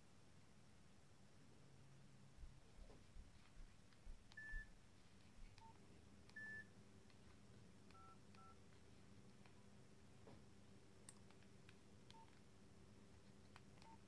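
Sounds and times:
phone keypad beeps: 0:04.4 - 0:04.7, 0:05.6 - 0:06.7, 0:07.9 - 0:08.6, 0:12.1 - 0:12.4, 0:13.8 - 0:14.0.

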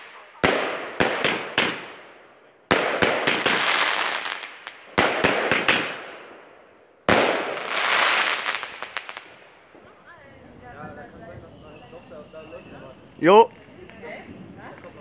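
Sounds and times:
firework bangs: 0:00.0 - 0:11.4.

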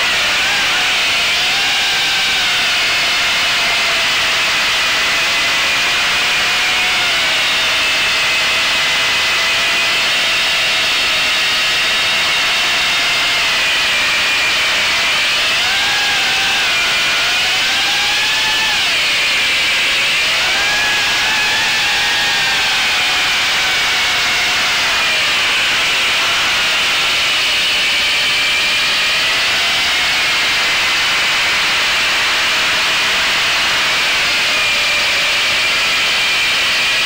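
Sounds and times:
model airplane motor drone: 0:00.0 - 0:37.0.

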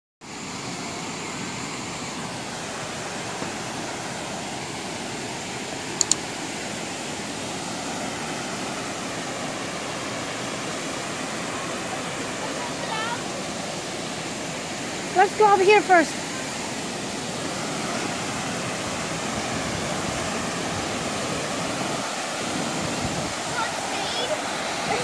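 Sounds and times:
waterfall and rapids rushing: 0:00.2 - 0:25.0
mouse click sound effect: 0:06.0 - 0:06.2.

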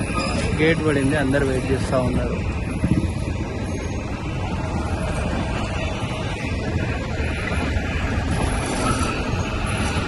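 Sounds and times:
train rumbling along track: 0:00.0 - 0:10.0.

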